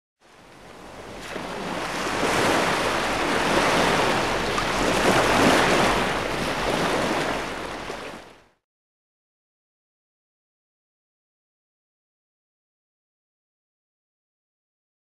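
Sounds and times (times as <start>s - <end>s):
rushing surf-like noise: 1.3s - 8.1s.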